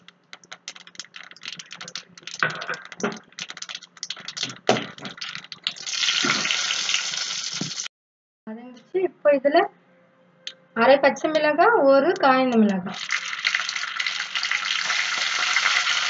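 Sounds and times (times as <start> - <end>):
oil sizzling: 0.0 - 7.9, 12.9 - 16.0
seeds popping in hot oil: 0.0 - 7.9, 12.7 - 16.0.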